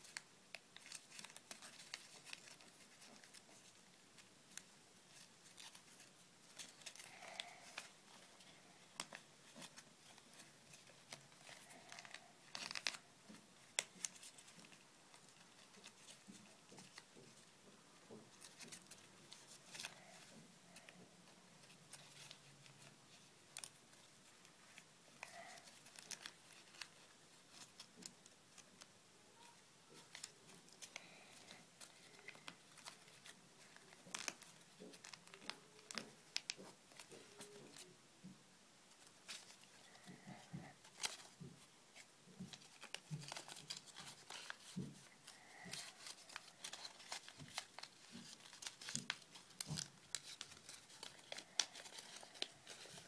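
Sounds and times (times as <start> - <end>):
paper folding and crinkling: 0.0 - 38.0, 38.9 - 53.0.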